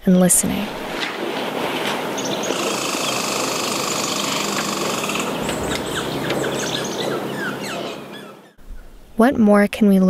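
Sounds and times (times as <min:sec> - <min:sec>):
low steady hum: 0:00.4 - 0:08.5
rattling buzz: 0:00.6 - 0:08.6
small birds chirping: 0:00.7 - 0:08.6.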